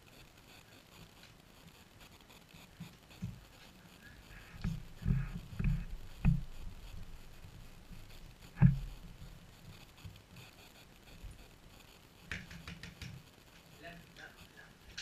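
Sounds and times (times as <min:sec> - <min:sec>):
dull thumps and knocks: 0:04.6 - 0:06.6, 0:08.5 - 0:09.0.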